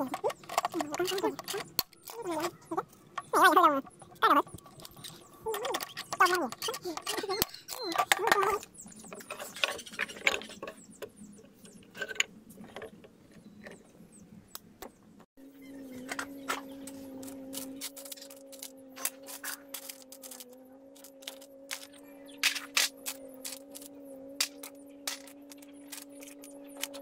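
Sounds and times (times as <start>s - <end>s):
steady low hum: 8.6s - 27.0s.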